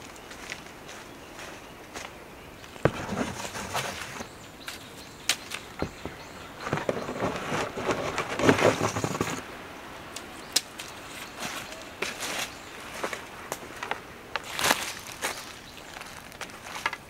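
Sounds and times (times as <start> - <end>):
cardboard scraping and rustling: 2.8 - 4.4, 5.8 - 9.4.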